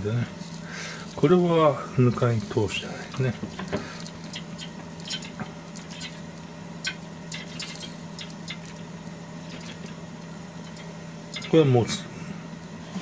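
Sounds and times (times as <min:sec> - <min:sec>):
cooktop grill humming: 0:00.0 - 0:13.0
crackles and clicks on wire rack: 0:03.2 - 0:09.9.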